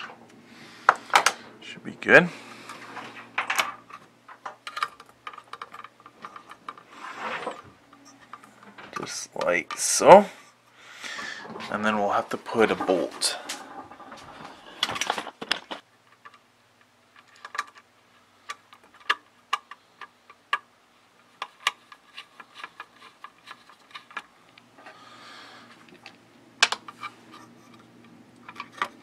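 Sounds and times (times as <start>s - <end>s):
scraping on circuit board: 6.4s - 8.3s.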